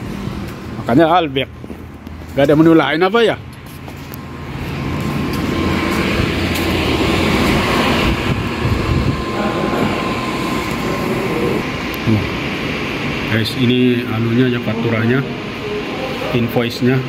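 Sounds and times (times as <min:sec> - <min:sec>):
air-conditioning rumble: 0:00.0 - 0:17.0
faint steady hum: 0:06.2 - 0:17.0.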